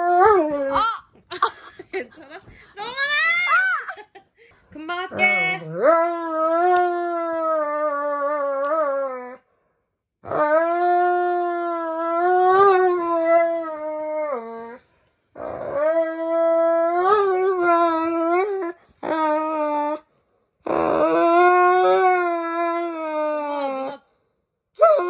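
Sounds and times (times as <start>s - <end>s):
dog howling: 10.2s - 14.8s, 20.7s - 24.0s.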